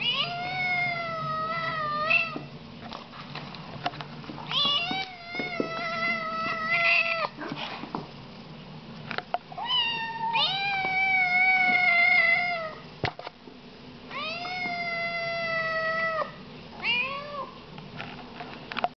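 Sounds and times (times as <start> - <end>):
kittens meowing loudly: 4.5 - 7.4, 9.6 - 12.8.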